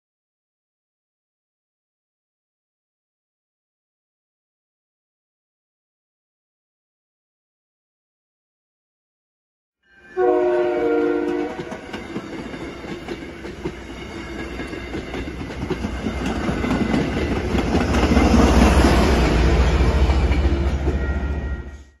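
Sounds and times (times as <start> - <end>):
train chord horn blast: 9.9 - 11.8
train passing with wheel noise: 10.0 - 22.0.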